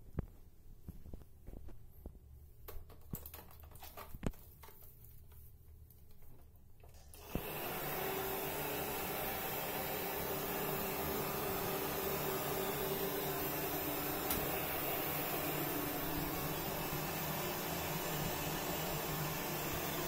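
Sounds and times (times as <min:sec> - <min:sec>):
hair dryer running: 0:07.1 - 0:20.0.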